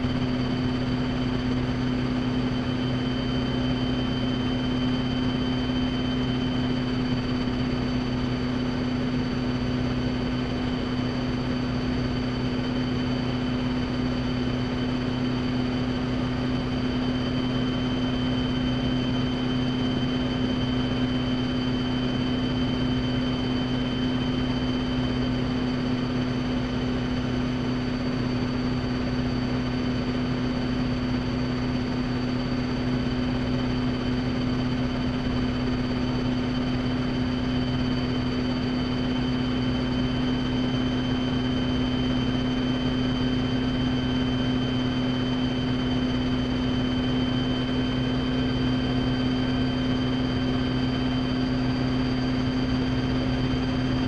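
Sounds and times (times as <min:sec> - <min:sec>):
helicopter engine low drone: 0:00.0 - 0:54.0
high rotor drive whine: 0:00.0 - 0:54.0.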